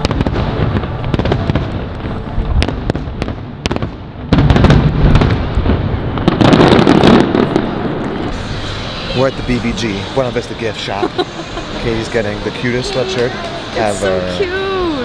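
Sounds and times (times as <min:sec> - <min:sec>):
fireworks cracks and pops: 0:00.0 - 0:08.8
fireworks deep booms: 0:00.0 - 0:08.9.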